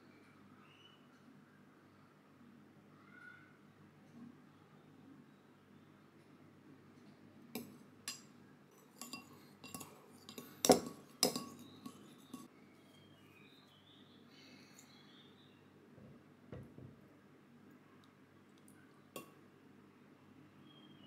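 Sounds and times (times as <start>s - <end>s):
spoon clinking against bowl: 7.6s - 12.5s.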